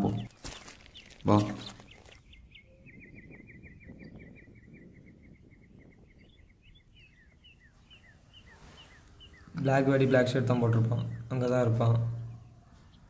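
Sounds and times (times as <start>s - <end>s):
bird chirping: 0.0s - 13.0s
faint outdoor background noise: 4.3s - 13.0s.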